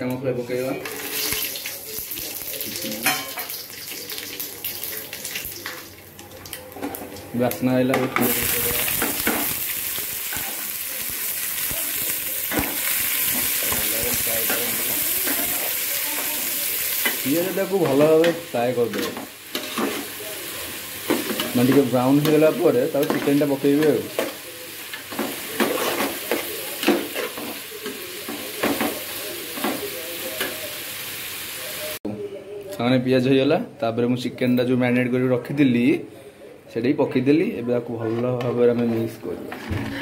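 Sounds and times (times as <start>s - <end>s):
onions sizzling in hot oil: 0.8s - 6.2s, 6.9s - 32.0s.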